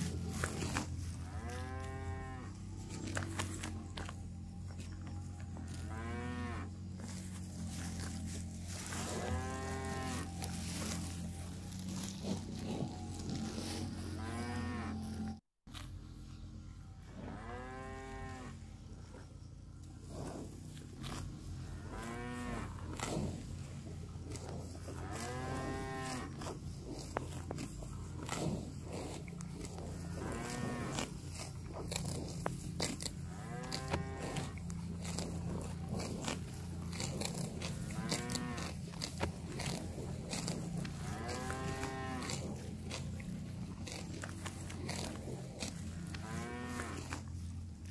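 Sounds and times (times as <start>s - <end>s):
cows tearing grass: 0.0s - 47.9s
cattle mooing: 0.1s - 4.1s, 5.4s - 11.2s, 12.0s - 15.4s, 25.0s - 26.5s, 29.7s - 31.1s, 33.3s - 36.1s, 36.9s - 47.3s.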